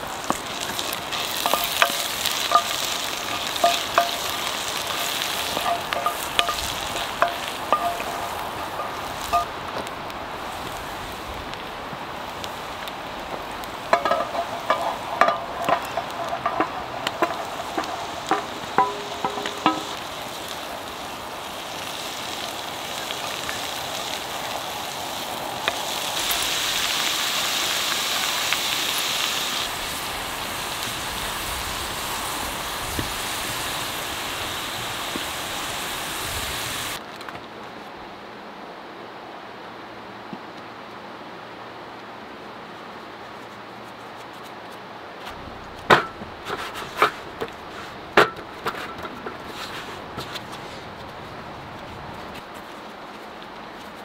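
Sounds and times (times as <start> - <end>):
wooden spoon stirring pan: 0.0 - 9.9, 12.3 - 21.1
mushrooms sizzling in oil: 0.0 - 37.0
clinks and knocks: 1.4 - 9.5, 13.9 - 20.0.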